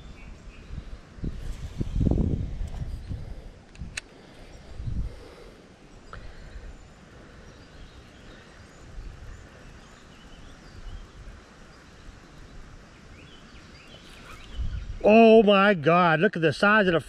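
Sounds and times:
wind rumbling on microphone: 0:00.0 - 0:05.5, 0:08.7 - 0:15.2
faint bird chirps: 0:04.2 - 0:15.1.

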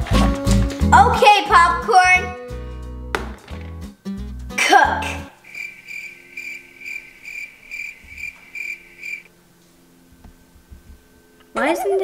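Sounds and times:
cricket chirping: 0:05.4 - 0:09.3.

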